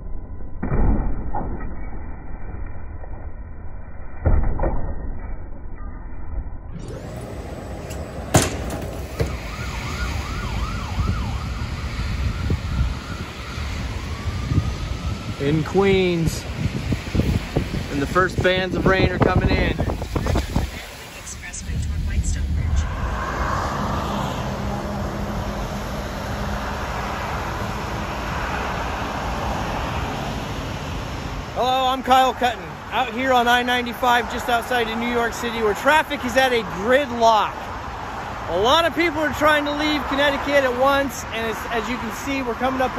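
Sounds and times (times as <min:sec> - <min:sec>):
emergency vehicle siren: 0:06.8 - 0:17.8, 0:21.8 - 0:30.6
highway traffic rush: 0:06.8 - 0:42.9
steady low rumble: 0:16.4 - 0:27.2.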